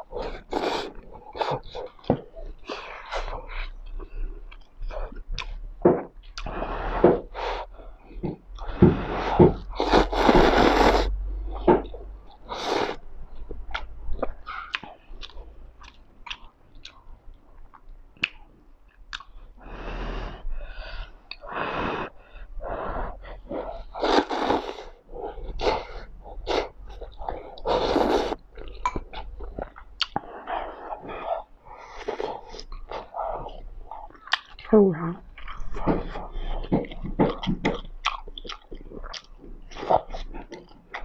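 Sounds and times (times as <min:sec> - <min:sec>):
noodles being slurped: 0:09.7 - 0:11.2, 0:23.9 - 0:24.9, 0:25.5 - 0:29.3
sticky chewing clicks: 0:13.4 - 0:19.4, 0:28.5 - 0:30.3, 0:32.4 - 0:36.0, 0:36.7 - 0:41.0.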